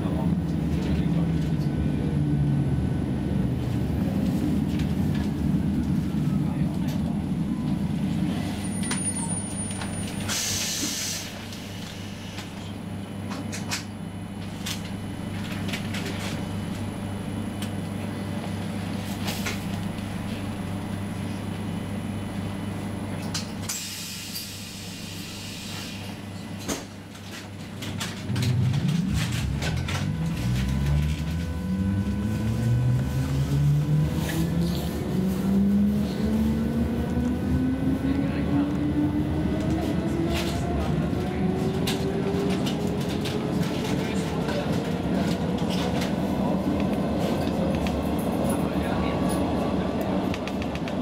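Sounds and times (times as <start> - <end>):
train low hum: 0.0 - 51.0
traction motor whine rising: 28.3 - 42.6.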